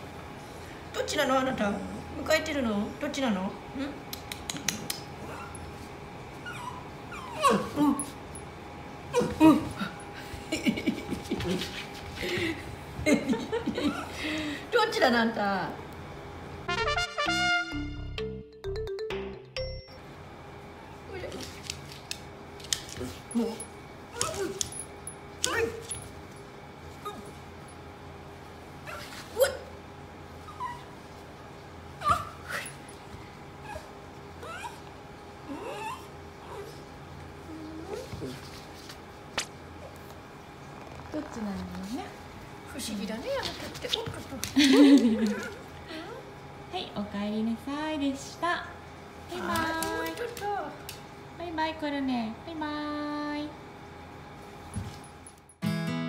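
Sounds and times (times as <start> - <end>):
dog whining and yipping: 6.4 - 8.2, 30.4 - 31.0, 32.0 - 32.8, 33.6 - 34.9, 35.5 - 36.8.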